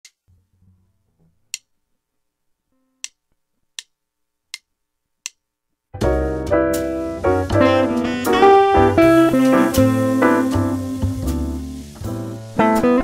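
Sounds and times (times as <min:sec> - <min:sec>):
music: 0:06.0 - 0:13.0.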